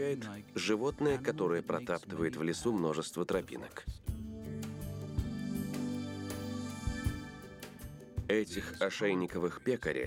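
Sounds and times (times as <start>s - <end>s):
background music with held notes: 0.0s - 10.0s.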